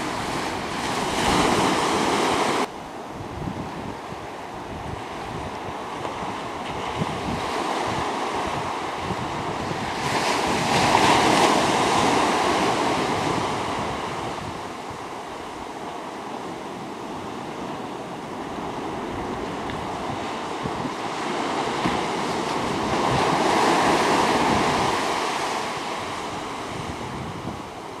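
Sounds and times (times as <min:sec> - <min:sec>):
wind rumbling on microphone: 0:00.0 - 0:28.0
surf breaking on rocks: 0:18.4 - 0:27.0.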